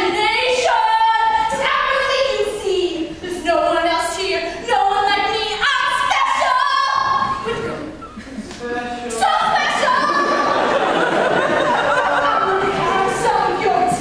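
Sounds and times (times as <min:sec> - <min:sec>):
young woman singing: 0:00.0 - 0:07.9.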